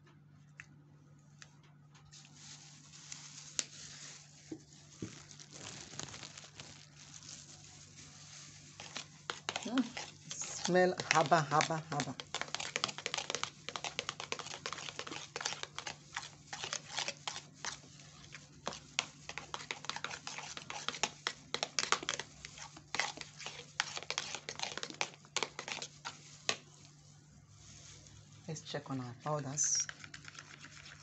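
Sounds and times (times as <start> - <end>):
plastic gloves crinkling: 2.0 - 31.0
spatula scraping plastic bowl: 8.8 - 26.6.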